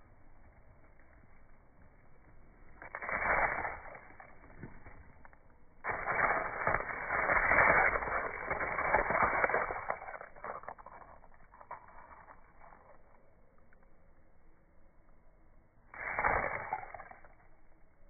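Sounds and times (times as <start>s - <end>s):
moss rustling and crackling: 2.6s - 13.3s.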